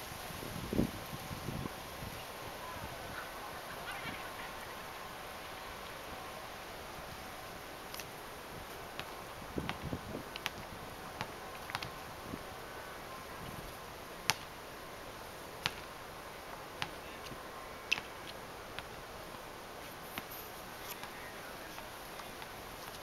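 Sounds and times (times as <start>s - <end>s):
faint outdoor hiss: 0.0s - 23.0s.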